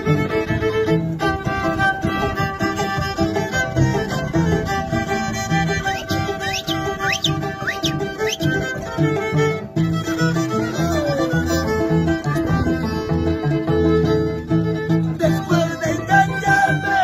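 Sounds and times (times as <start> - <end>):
plucked harp: 0.0 - 17.0
violin melody: 0.0 - 17.0.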